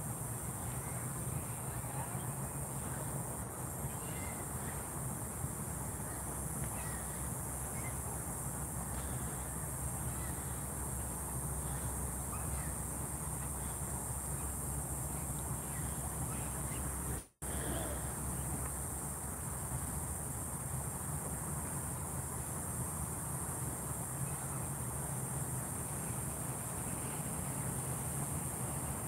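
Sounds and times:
insect drone: 0.0 - 29.0
bird calls: 6.0 - 8.0, 11.6 - 12.9.

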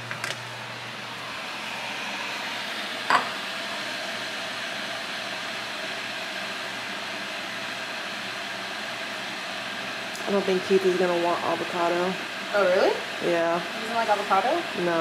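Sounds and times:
fan noise: 0.0 - 15.0.

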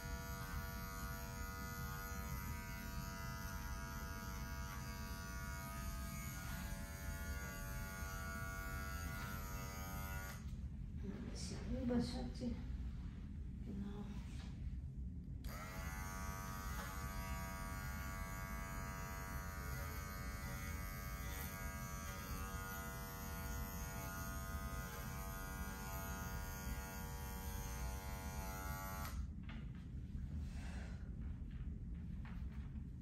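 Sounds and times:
electric dog clipper buzzing: 0.0 - 10.6, 15.4 - 29.3.

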